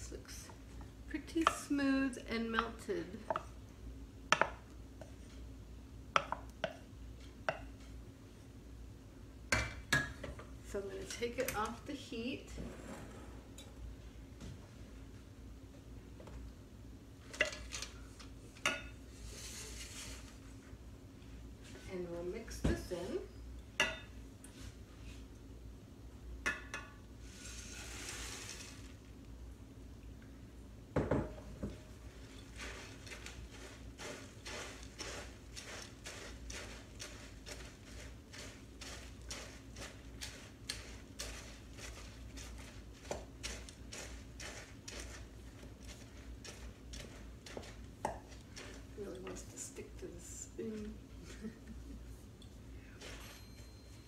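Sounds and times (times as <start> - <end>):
wooden spoon scraping saucepan: 19.1 - 20.4, 27.2 - 28.9, 32.1 - 50.6
dry cereal rattling into pan: 27.3 - 29.0, 32.2 - 49.5
dishes and utensils knocking: 31.0 - 31.8.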